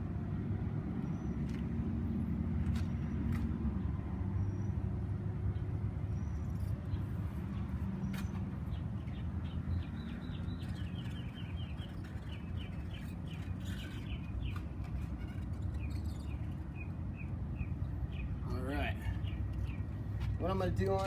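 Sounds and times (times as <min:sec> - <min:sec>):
bird chirping: 0:06.1 - 0:19.9.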